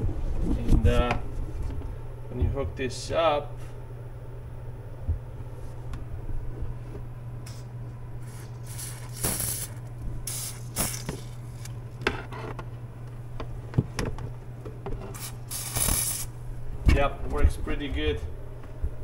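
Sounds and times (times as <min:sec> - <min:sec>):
steady low hum: 0:00.0 - 0:19.0
spray gun hissing bursts: 0:08.2 - 0:11.4, 0:15.2 - 0:16.3.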